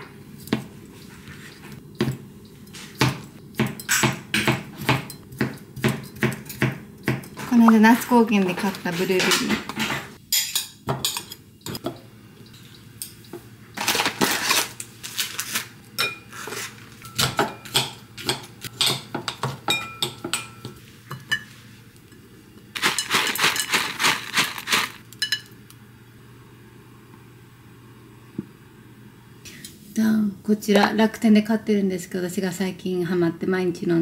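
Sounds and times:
spoons clinking against glass bowl: 25.2s - 25.5s.

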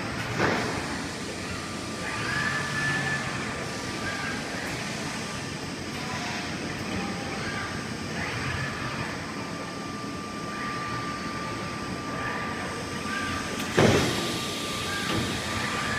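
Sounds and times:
steady machine hum: 0.0s - 15.9s
rising servo whines: 1.4s - 15.9s.

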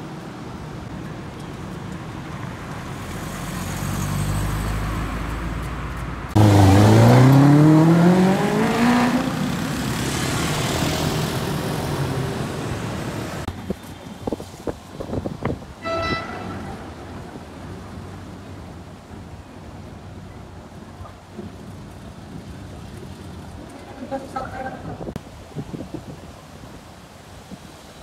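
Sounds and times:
tyre and road noise: 0.0s - 28.0s
car engine accelerating: 6.3s - 13.5s
car horn toot: 15.8s - 17.0s.

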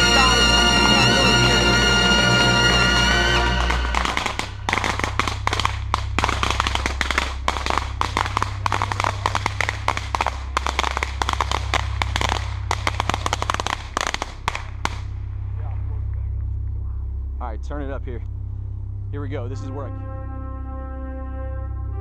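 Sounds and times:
fireworks crackling: 0.0s - 16.1s.

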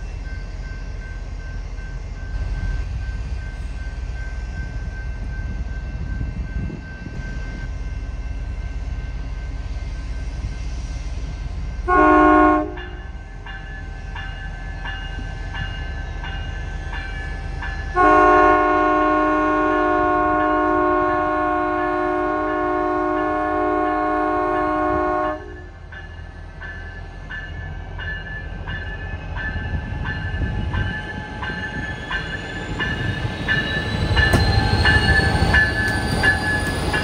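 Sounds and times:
locomotive bell ringing: 0.0s - 10.8s, 11.6s - 37.0s
diesel locomotive rumble: 0.0s - 37.0s
train air horn: 11.8s - 13.0s, 18.0s - 25.7s.

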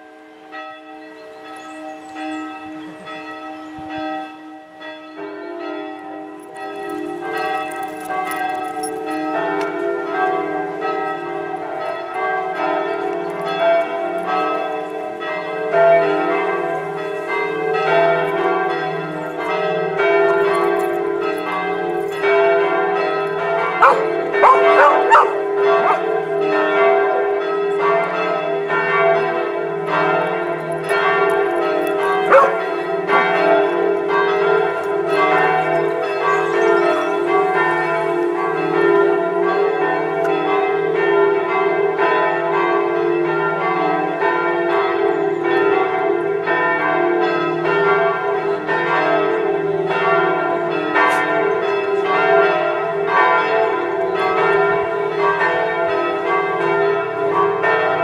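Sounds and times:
church bells pealing: 0.0s - 58.0s
dog barking: 23.8s - 26.1s, 32.3s - 32.6s.

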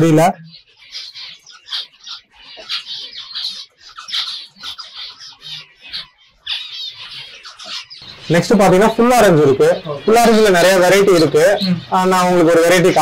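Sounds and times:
finches chirping: 0.0s - 13.0s.

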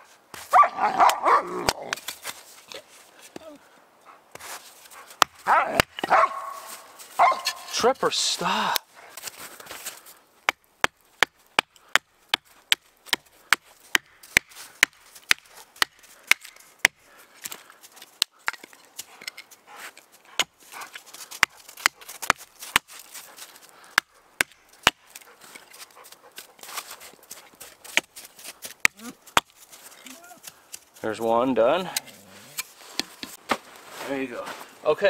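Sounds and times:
axe chopping hardwood: 5.2s - 6.3s, 10.4s - 17.6s, 21.4s - 23.2s, 23.9s - 25.3s, 26.7s - 29.6s.

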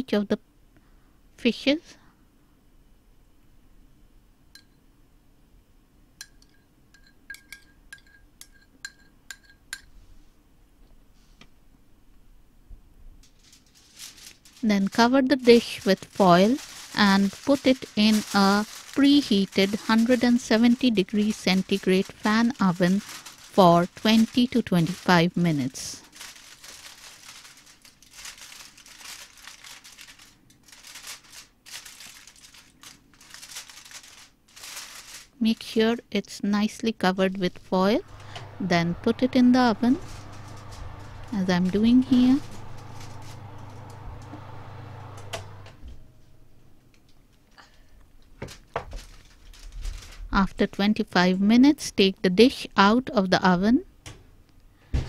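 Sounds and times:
metal spoon clinking ceramic bowl: 6.2s - 9.9s
aluminium foil crinkling: 13.2s - 35.8s, 37.4s - 45.8s, 46.9s - 50.8s.

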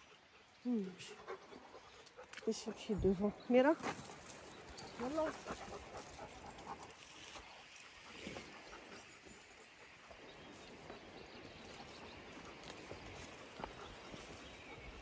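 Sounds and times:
soft ticks and rustles: 0.7s - 15.0s
footsteps on dirt path: 3.0s - 8.7s, 10.4s - 15.0s.

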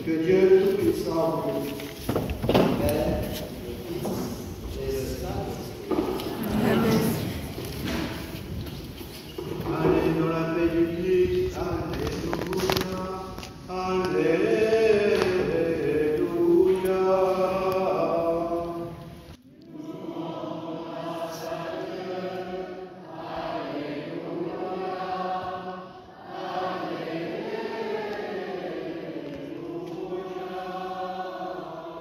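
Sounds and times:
group singing a chant: 5.9s - 8.3s, 13.7s - 32.0s.

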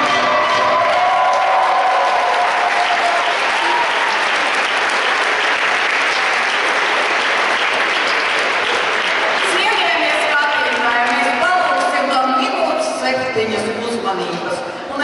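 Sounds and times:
audience applauding: 0.0s - 11.6s.

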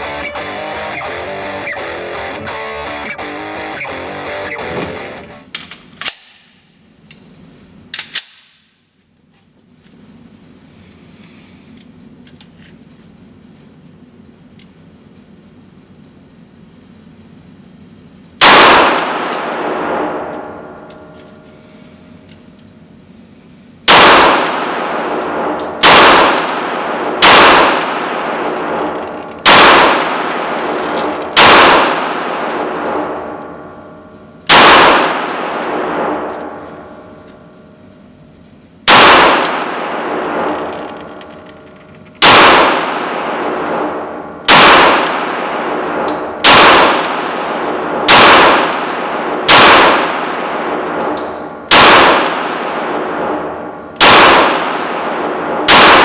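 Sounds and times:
pistol shots echoing indoors: 6.0s - 6.8s, 8.0s - 9.0s, 18.4s - 21.4s, 23.8s - 38.0s, 38.8s - 56.0s.

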